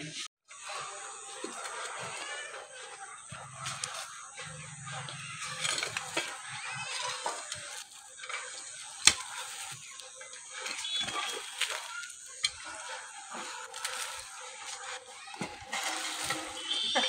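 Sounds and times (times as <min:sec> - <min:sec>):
hoe striking stony soil: 0:05.3 - 0:10.0, 0:10.6 - 0:12.7.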